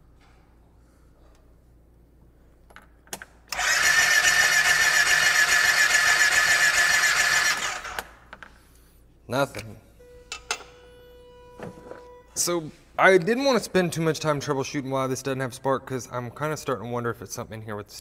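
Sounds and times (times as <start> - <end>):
electric starter cranking engine: 3.5 - 8.1.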